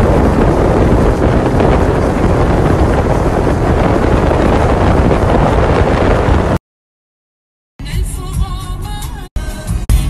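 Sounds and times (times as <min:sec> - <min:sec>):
wind buffeting microphone: 0:00.0 - 0:06.6.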